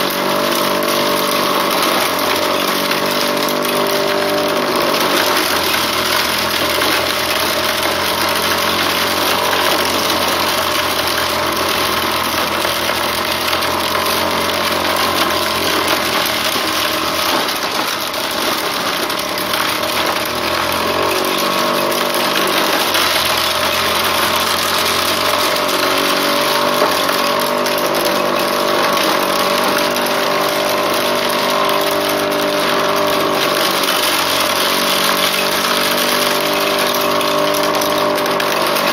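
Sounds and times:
corn sheller motor droning: 0.0 - 38.9.

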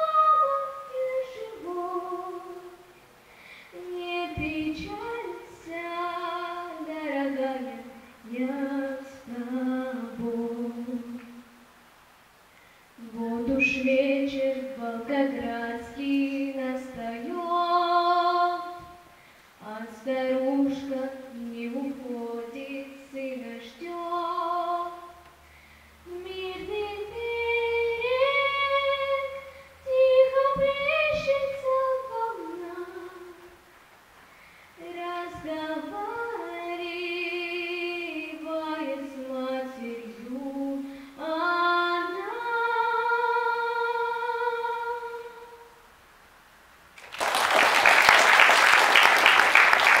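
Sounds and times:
boy singing into a microphone: 0.0 - 3.0, 3.7 - 11.5, 13.0 - 25.2, 26.0 - 33.6, 34.8 - 45.7
audience applause: 47.0 - 50.0.

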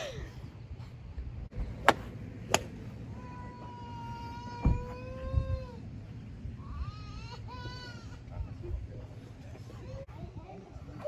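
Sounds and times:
golf clubs striking balls: 1.5 - 2.9.

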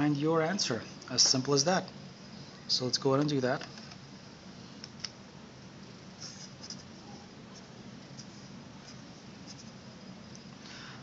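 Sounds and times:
low room hum: 0.0 - 11.0
marker scratching on paper: 6.2 - 9.8.

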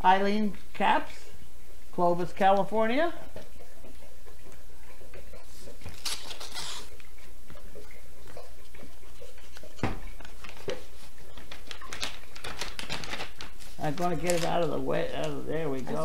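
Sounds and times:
envelope paper rustling: 5.8 - 6.9, 10.2 - 16.0.

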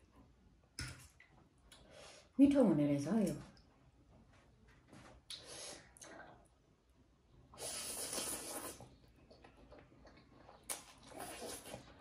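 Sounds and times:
slurping noodles: 7.5 - 9.0, 10.1 - 12.0.

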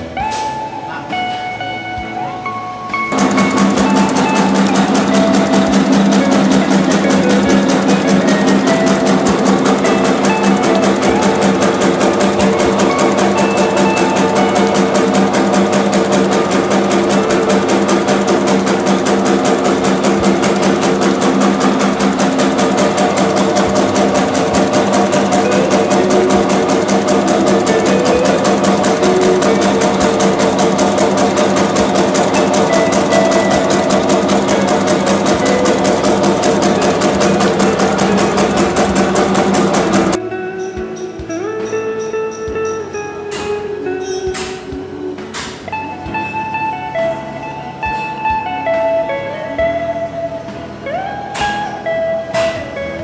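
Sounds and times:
motor hum: 3.0 - 41.4
rapid mechanical clatter: 3.1 - 40.2.

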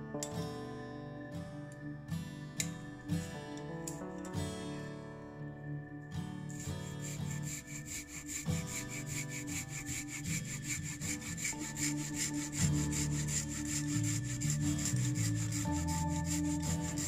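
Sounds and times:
background music: 0.0 - 17.0
hand saw cutting wood: 6.5 - 17.0.

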